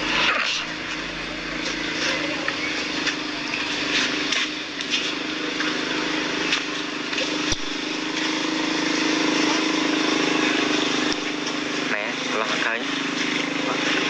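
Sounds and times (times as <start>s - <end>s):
motor humming: 0.0s - 6.8s.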